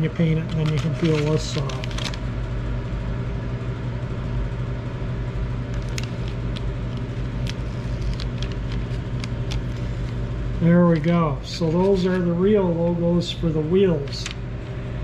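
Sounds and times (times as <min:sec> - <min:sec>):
motor humming: 0:04.9 - 0:15.0.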